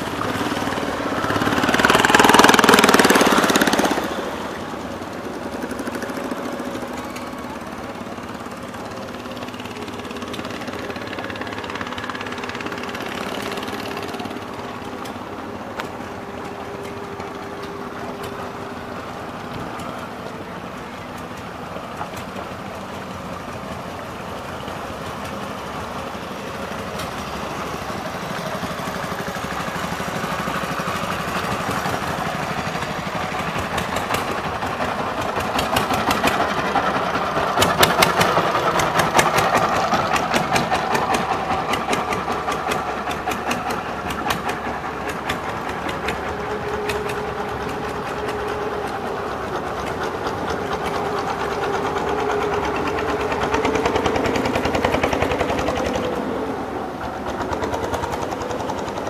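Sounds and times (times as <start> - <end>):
motorboat engine knocking: 0.0 - 59.0.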